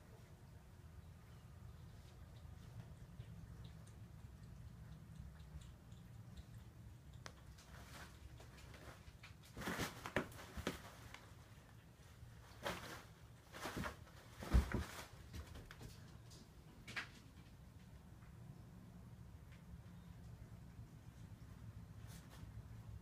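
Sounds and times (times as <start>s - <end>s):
paper towels rustling: 7.7s - 11.4s.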